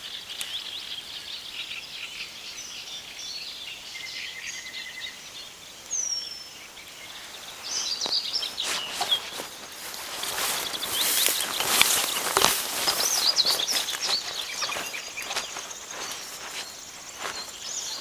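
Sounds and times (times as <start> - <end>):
birds chirping and trilling: 0.0 - 18.0
rustling: 7.4 - 18.0.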